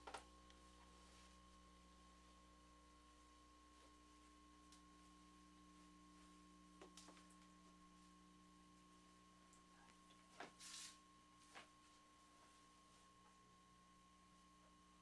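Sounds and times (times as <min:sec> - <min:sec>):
faint electrical hum: 0:00.0 - 0:15.0.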